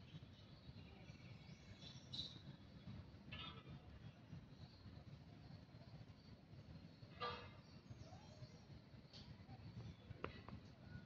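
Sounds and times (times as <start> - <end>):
faint high chirping: 0.0 - 3.0, 4.1 - 11.0.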